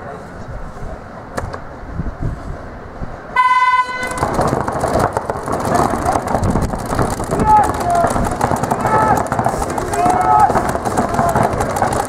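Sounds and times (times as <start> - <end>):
electronic start horn buzzing: 3.4 - 4.3
paintball markers firing: 4.0 - 12.0.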